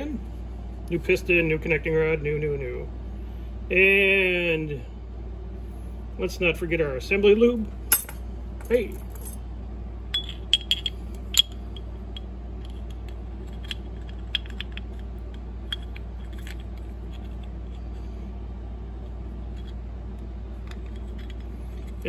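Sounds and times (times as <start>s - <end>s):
steady low hum: 0.0s - 22.0s
engine parts clicking and clinking: 10.2s - 17.8s.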